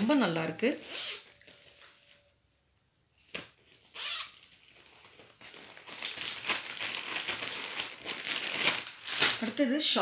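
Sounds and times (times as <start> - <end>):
plastic packaging crinkling: 3.6 - 10.0.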